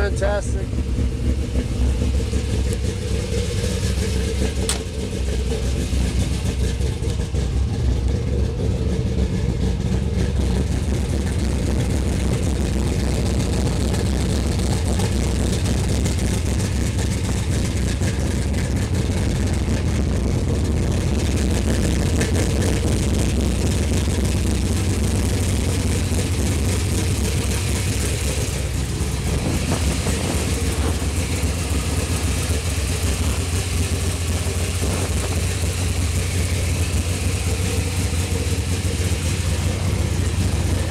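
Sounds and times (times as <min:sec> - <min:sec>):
truck engine idling: 0:00.0 - 0:40.9.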